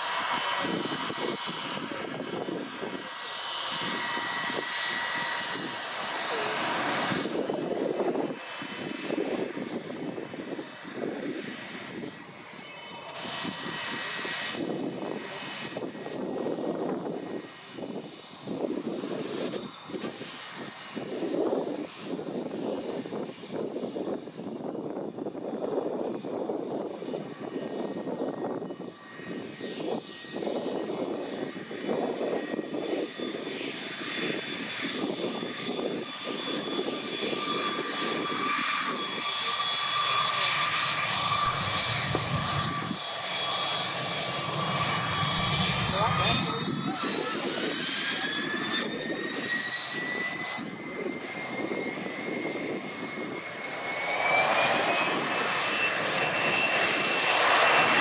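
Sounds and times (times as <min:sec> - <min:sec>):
jet engines whining: 0:00.0 - 0:58.0.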